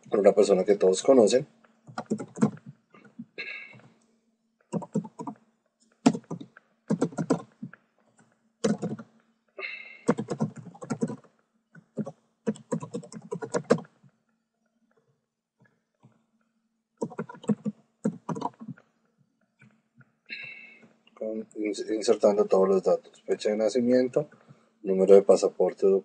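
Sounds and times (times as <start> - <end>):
faint steady hum: 0.0 - 26.0
typing on computer keyboard: 1.9 - 2.8, 4.7 - 5.4, 6.1 - 9.1, 10.0 - 14.0, 17.0 - 18.8.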